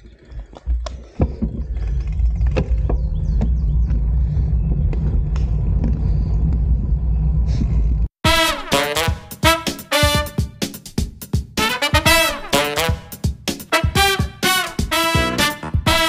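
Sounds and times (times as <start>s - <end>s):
wind and road noise rumble: 0.0s - 8.2s
swing music with brass: 8.2s - 16.0s.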